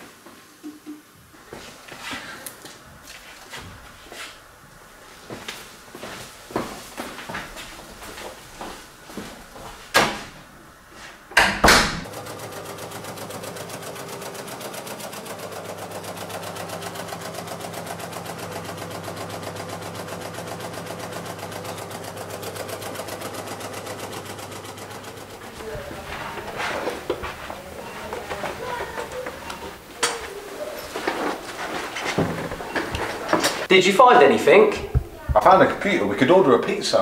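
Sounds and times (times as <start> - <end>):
heavy steel door banging: 11.4 - 12.1
fast mechanical clatter: 12.1 - 25.6.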